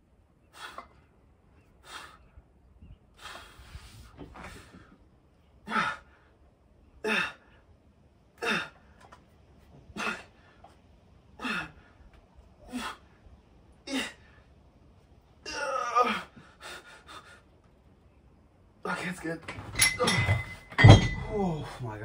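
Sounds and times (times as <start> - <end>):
man grunting and exhaling: 5.6 - 6.2, 7.0 - 7.6, 8.4 - 8.8, 9.9 - 10.5, 11.4 - 11.9, 12.6 - 13.1, 13.8 - 14.4, 15.4 - 16.8.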